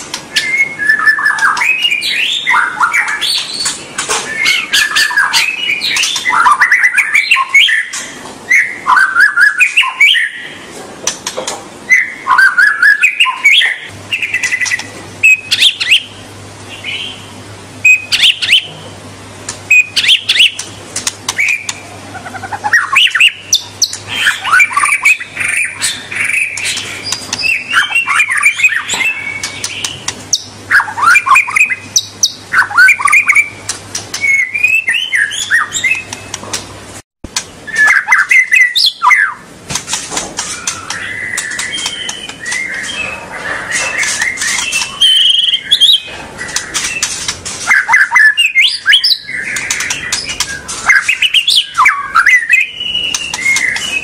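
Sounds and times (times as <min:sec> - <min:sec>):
bird singing whistled phrases: 0:00.3 - 0:03.7, 0:04.3 - 0:10.5, 0:11.9 - 0:16.1, 0:17.8 - 0:18.8, 0:19.7 - 0:20.6, 0:21.4 - 0:33.6, 0:34.2 - 0:36.2, 0:37.7 - 0:39.4, 0:40.5 - 0:47.1, 0:47.7 - 0:54.0.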